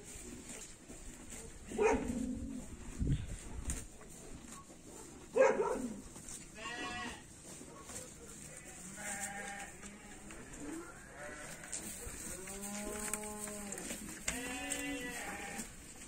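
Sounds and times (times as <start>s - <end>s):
livestock bleating: 6.5s - 7.3s, 8.5s - 15.8s.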